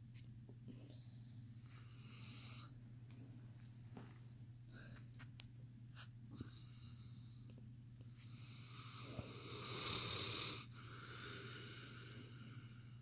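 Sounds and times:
dog snoring: 0:08.4 - 0:12.6.

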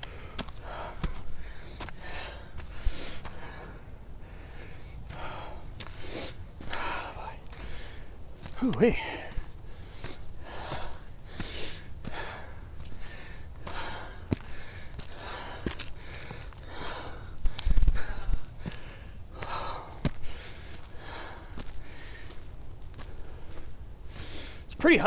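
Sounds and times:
person breathing hard: 0:00.0 - 0:24.7
footsteps on dirt: 0:00.0 - 0:25.0.

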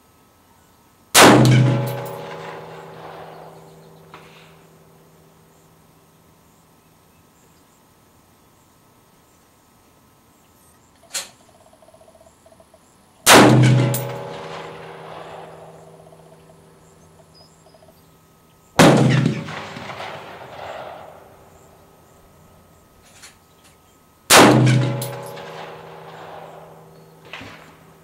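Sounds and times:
rifle shots echoing: 0:01.2 - 0:04.5, 0:13.3 - 0:16.6, 0:18.8 - 0:22.1, 0:24.3 - 0:28.0.

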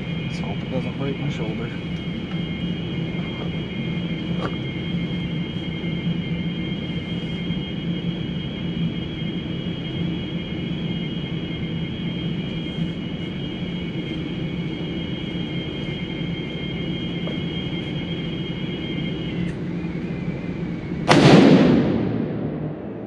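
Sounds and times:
steady background hum: 0:00.0 - 0:23.0
rifle shot echoing indoors: 0:21.0 - 0:23.0.

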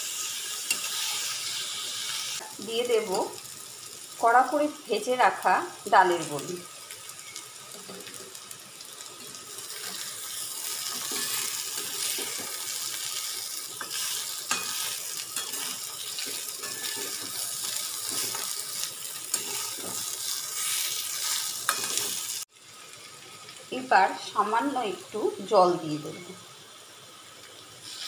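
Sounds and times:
food sizzling in hot oil: 0:00.0 - 0:28.0
spatula scraping a pan: 0:00.2 - 0:02.4, 0:09.2 - 0:22.3.

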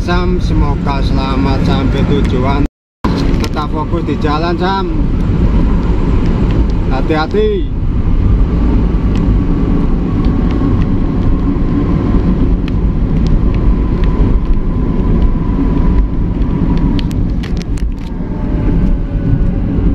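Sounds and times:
vehicle engine and road rumble: 0:00.0 - 0:19.9.

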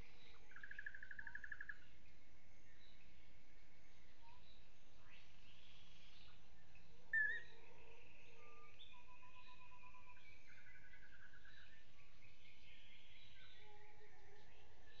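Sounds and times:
thin whistled bird calls: 0:00.0 - 0:02.0, 0:04.1 - 0:15.0
bird trill: 0:00.5 - 0:01.8.

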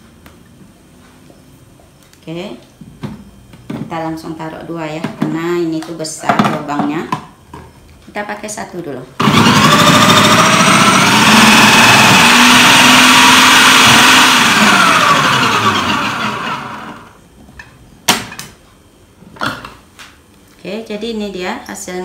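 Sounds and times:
food processor motor whining: 0:09.2 - 0:17.2.

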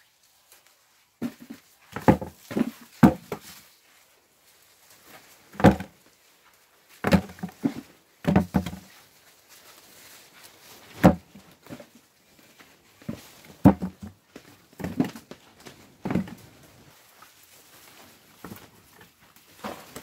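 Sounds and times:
faint rustling of vines: 0:00.0 - 0:20.0
cucumbers thudding into plastic bucket: 0:01.2 - 0:03.5, 0:05.6 - 0:06.0, 0:07.0 - 0:08.9, 0:11.0 - 0:11.9, 0:13.1 - 0:14.2, 0:16.0 - 0:16.4.

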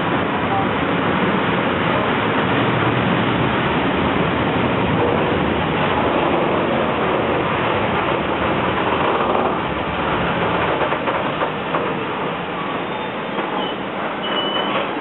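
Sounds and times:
train wheels rumbling on rails: 0:00.0 - 0:15.0
rail clicks: 0:04.6 - 0:15.0.

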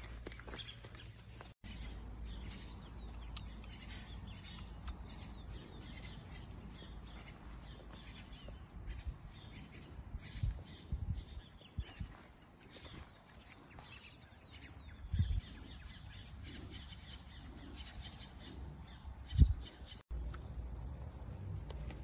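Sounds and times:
birds chirping: 0:00.0 - 0:22.0.

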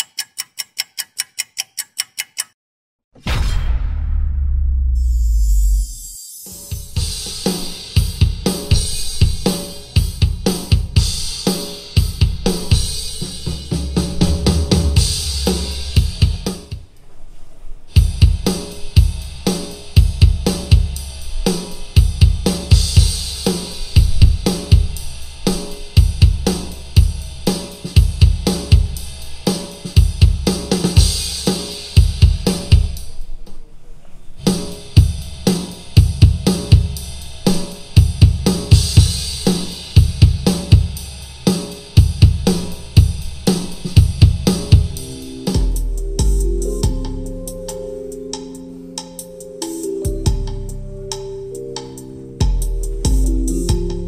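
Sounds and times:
hard rock backing track: 0:06.7 - 0:16.8
punchy kick drum: 0:20.0 - 0:21.0, 0:24.0 - 0:25.2, 0:26.0 - 0:27.4, 0:28.0 - 0:29.0, 0:32.0 - 0:33.0, 0:36.0 - 0:37.0, 0:38.0 - 0:39.4, 0:40.0 - 0:41.0, 0:42.0 - 0:45.0.

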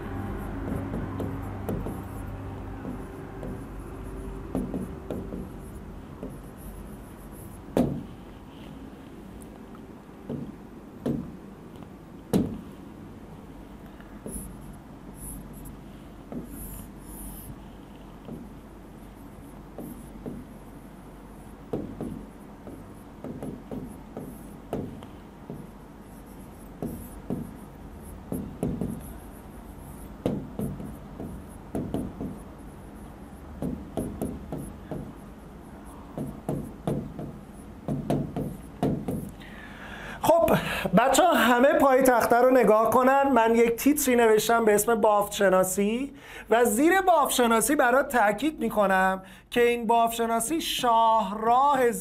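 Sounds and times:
low steady hum: 0:00.0 - 0:47.8
stylus tapping on touchscreen: 0:00.4 - 0:08.2, 0:10.2 - 0:12.7, 0:16.3 - 0:16.9, 0:18.2 - 0:18.6, 0:19.7 - 0:20.5, 0:21.7 - 0:29.2, 0:30.0 - 0:32.6, 0:33.5 - 0:35.3, 0:36.1 - 0:39.4.

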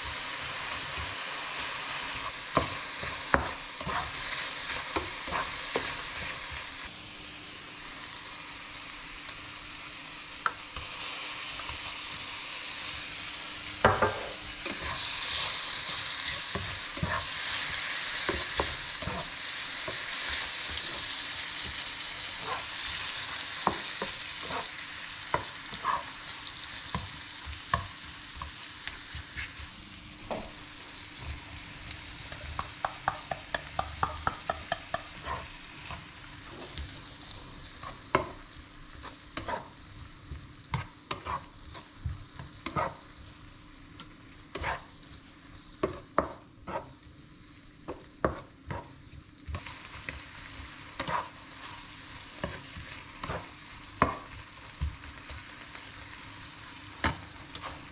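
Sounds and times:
food sizzling in a pan: 0:00.0 - 0:57.9
spatula tapping a pan: 0:26.9 - 0:28.6, 0:32.3 - 0:35.3, 0:54.0 - 0:55.5.

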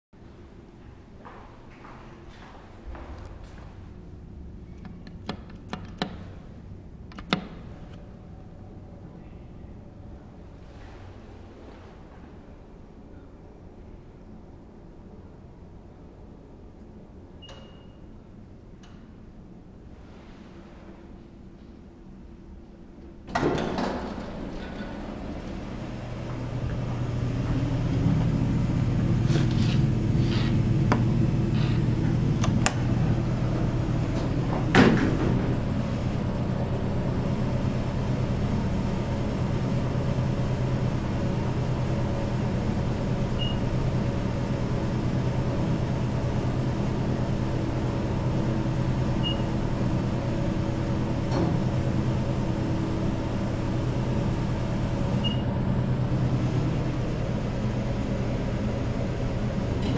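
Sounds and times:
elevator pump motor hum: 0:23.0 - 0:59.9.

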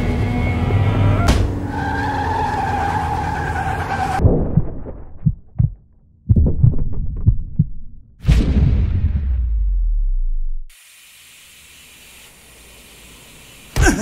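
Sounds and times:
car tyres screeching: 0:00.0 - 0:04.2
muffled heartbeat thuds: 0:04.3 - 0:08.2.

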